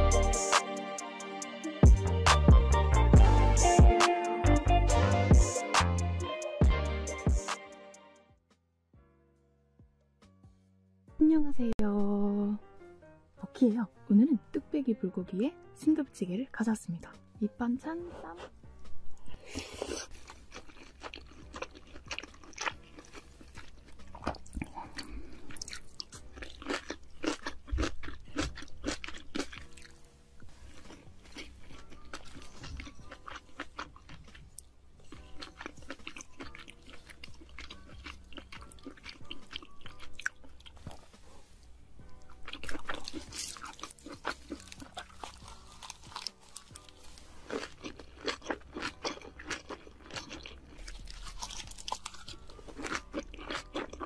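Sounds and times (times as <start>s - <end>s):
crunchy bites and chewing: 19.6s - 41.2s, 42.1s - 54.0s.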